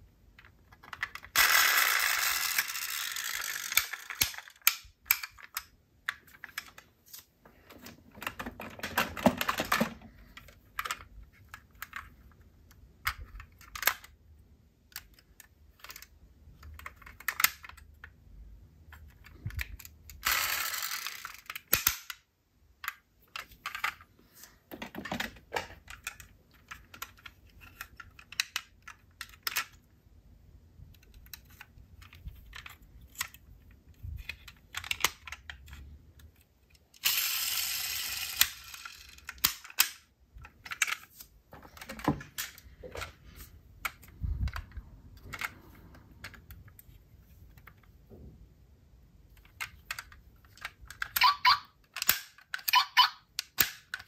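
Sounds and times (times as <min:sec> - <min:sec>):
metal toy cars clicking and clattering: 0:00.4 - 0:06.9, 0:08.1 - 0:14.2, 0:14.9 - 0:18.2, 0:18.9 - 0:22.2, 0:24.8 - 0:29.9, 0:30.9 - 0:43.0, 0:49.3 - 0:54.0.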